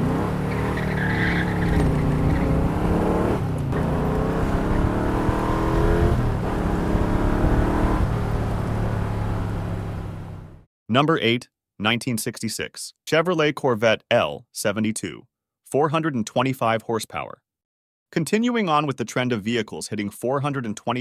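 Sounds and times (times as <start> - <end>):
car engine accelerating hard: 0.0 - 10.6.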